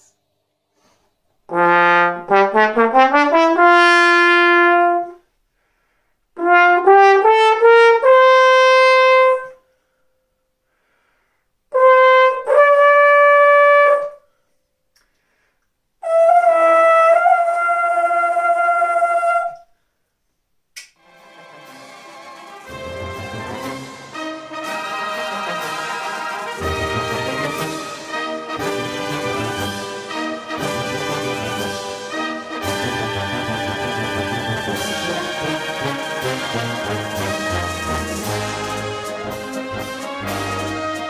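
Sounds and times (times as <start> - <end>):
trombone playing: 1.5 - 5.2, 6.4 - 9.5, 11.7 - 14.2, 22.6 - 41.0.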